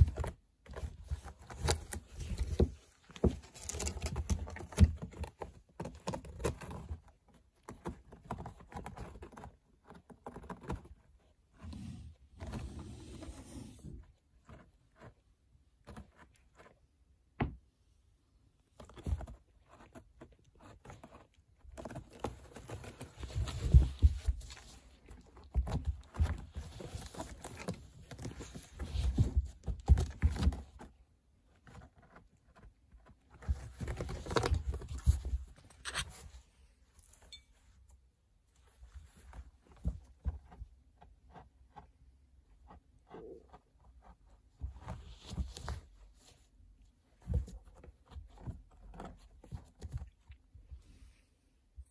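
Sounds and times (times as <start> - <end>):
cat scratching cardboard: 0.0 - 36.9, 38.4 - 51.1.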